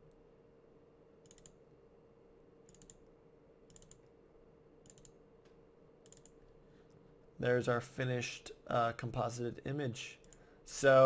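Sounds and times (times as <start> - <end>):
faint steady hum: 0.0 - 11.0
computer clicking: 1.2 - 1.6, 2.7 - 3.1, 3.7 - 4.1, 4.8 - 5.2, 6.0 - 6.4.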